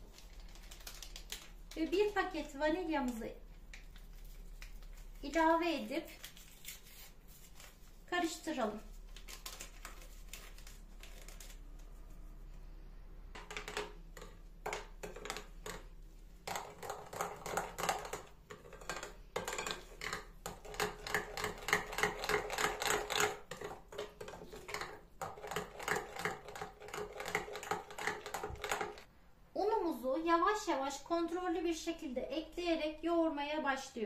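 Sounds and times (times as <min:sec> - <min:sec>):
spoon stirring batter in glass bowl: 0:13.3 - 0:29.1.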